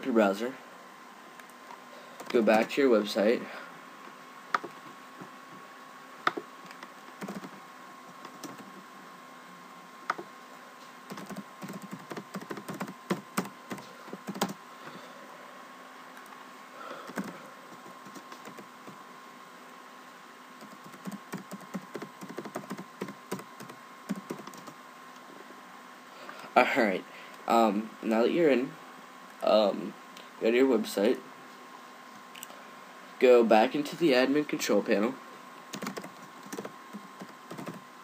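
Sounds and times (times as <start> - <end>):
faint steady hum: 0.0 - 38.0
keyboard typing: 4.6 - 4.8, 6.3 - 8.8, 11.1 - 14.6, 17.1 - 19.0, 20.6 - 24.8, 35.7 - 37.8.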